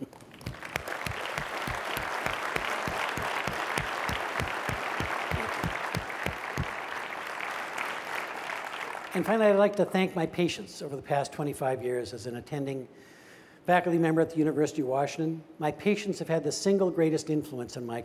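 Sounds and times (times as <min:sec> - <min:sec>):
nearby hands clapping evenly: 0:00.0 - 0:07.2
audience applauding: 0:00.0 - 0:09.3.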